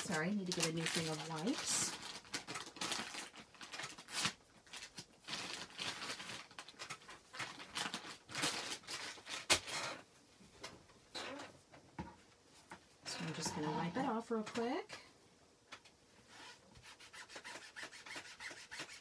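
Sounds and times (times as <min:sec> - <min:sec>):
plastic pack crinkling: 0:00.0 - 0:10.0.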